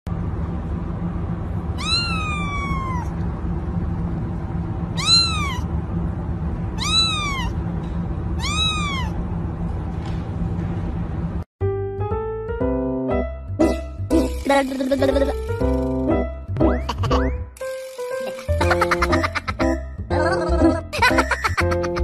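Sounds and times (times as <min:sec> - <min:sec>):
low background hum: 0:00.1 - 0:11.5, 0:13.6 - 0:22.0
kitten meowing: 0:01.8 - 0:03.1, 0:05.0 - 0:05.7, 0:06.8 - 0:07.6, 0:08.4 - 0:09.2.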